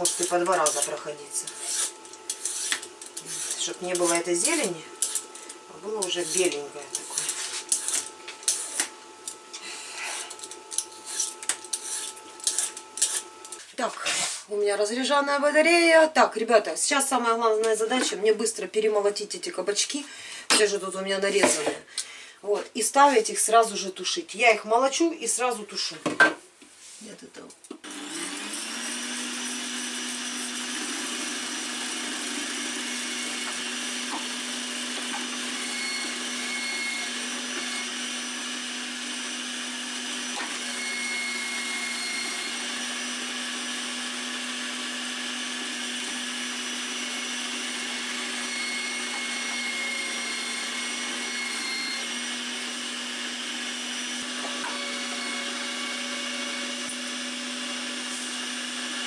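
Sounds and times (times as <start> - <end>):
electric shredder motor hum: 0.0 - 13.6, 27.8 - 59.0.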